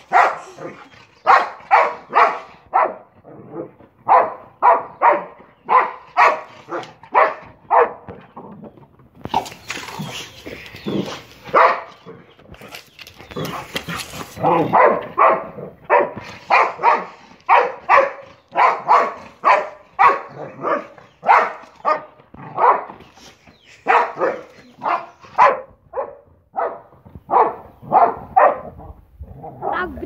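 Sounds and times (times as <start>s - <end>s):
dog barking: 0.0s - 3.1s, 4.0s - 8.1s, 11.5s - 11.9s, 14.4s - 22.9s, 23.8s - 28.8s.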